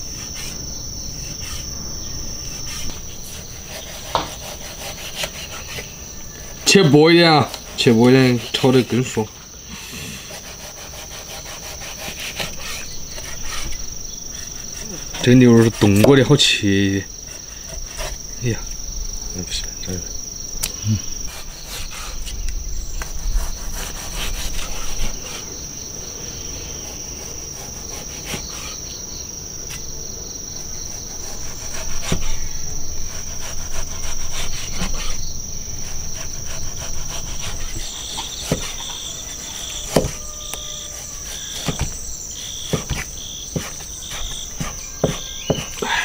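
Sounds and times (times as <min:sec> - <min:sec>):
high-pitched insect trill: 0:00.0 - 0:46.0
knife knocking on chopping board: 0:44.6 - 0:45.7.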